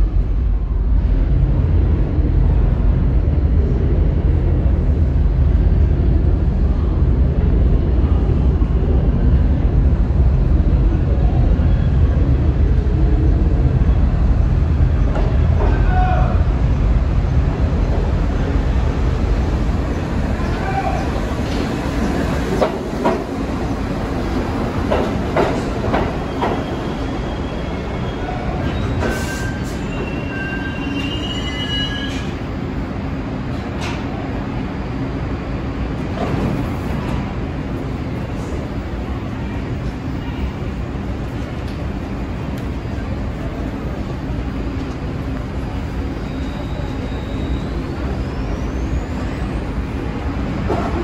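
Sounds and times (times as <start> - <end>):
subway train rumbling: 0.0 - 51.0
high wheel squeal: 26.6 - 32.4, 46.2 - 49.6.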